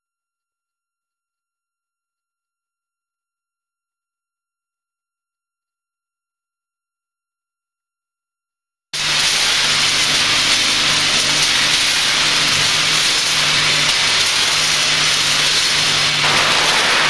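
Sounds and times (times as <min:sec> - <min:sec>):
machine hissing noise: 0:09.0 - 0:17.0.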